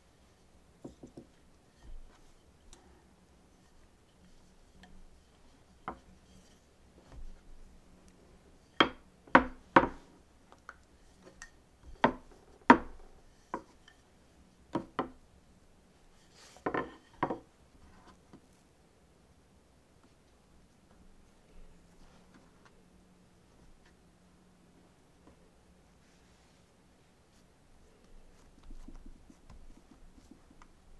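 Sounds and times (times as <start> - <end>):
rolling pin knocking on wooden board: 8.8 - 10.0.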